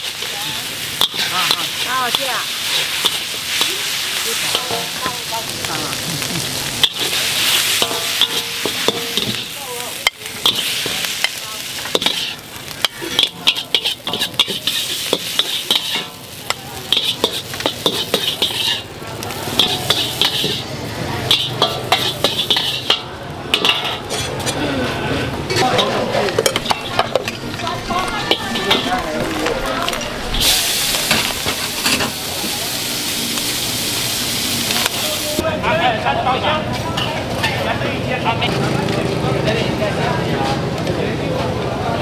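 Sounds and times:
metal spatula scraping a wok: 0.0s - 5.5s, 6.8s - 32.2s
noodles sizzling in a wok: 0.0s - 24.4s, 25.2s - 35.8s.

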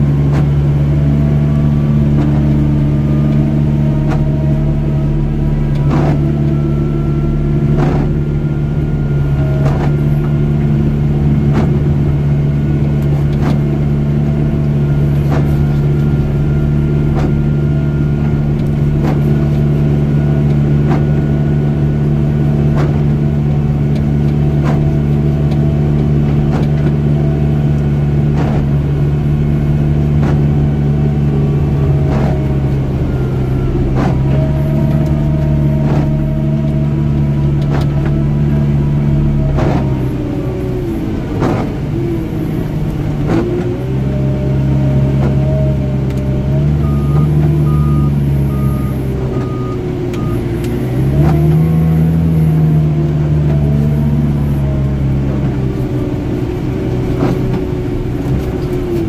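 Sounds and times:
diesel engine running under load: 0.0s - 59.0s.

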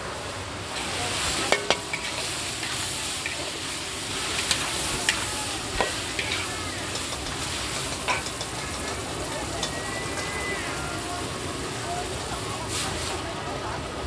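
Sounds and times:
nuts sizzling in a wok: 0.3s - 13.8s
metal ladles scraping and clinking: 0.8s - 10.8s.

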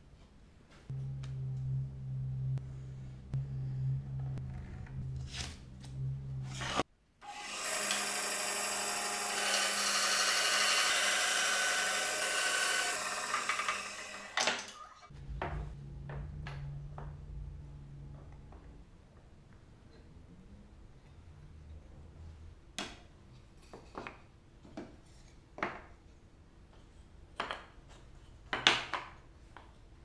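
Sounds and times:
low steady hum: 0.0s - 6.8s, 15.1s - 22.6s
band saw cutting wood: 6.4s - 15.1s.

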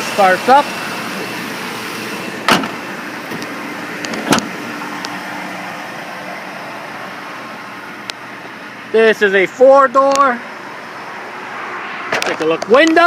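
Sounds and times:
car engine idling: 0.0s - 13.0s
sharp knocks: 2.5s - 2.8s.

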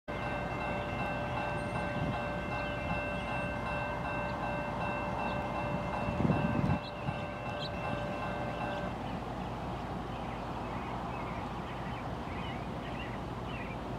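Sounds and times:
crossing warning bell ringing: 0.1s - 9.2s.

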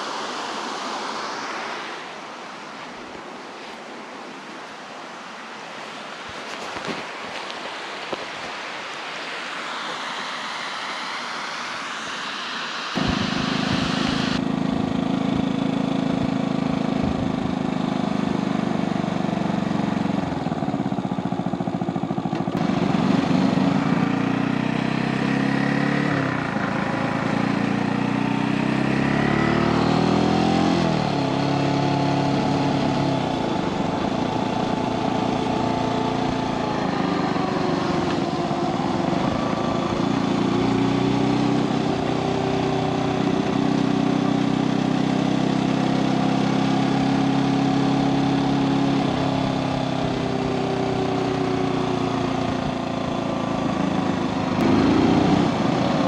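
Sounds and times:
wind noise: 12.9s - 17.8s
motorcycle engine revving: 12.9s - 56.0s.

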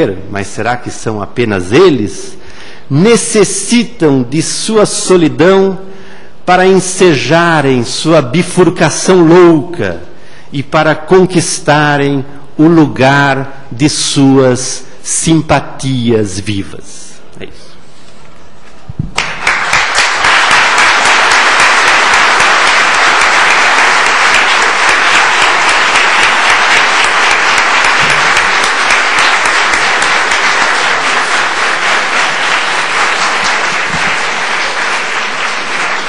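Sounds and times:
audience applauding: 19.1s - 36.0s.

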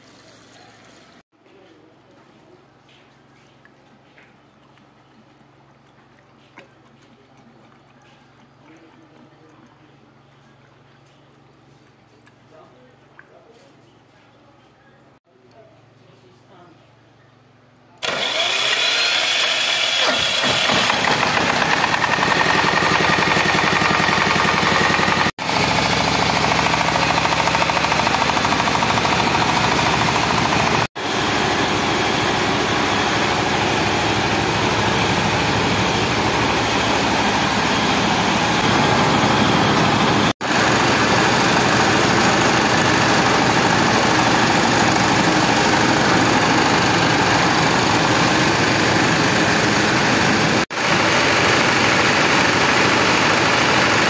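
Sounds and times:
engine and milling machinery din: 18.0s - 54.0s.

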